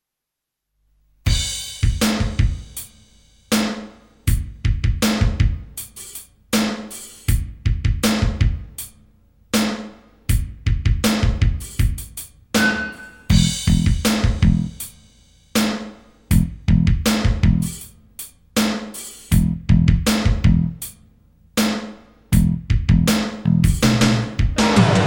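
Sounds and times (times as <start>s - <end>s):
drum kit beat: 1.3s - 25.0s
held high note: 12.6s - 13.4s.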